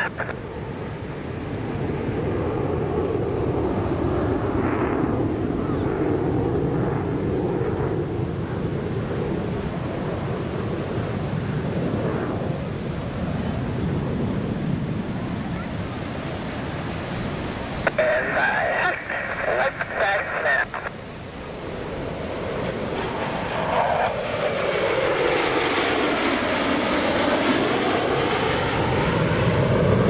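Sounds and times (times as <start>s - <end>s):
distant jet engine roar: 0.0s - 30.0s
wind: 0.0s - 30.0s
surf: 15.6s - 21.1s.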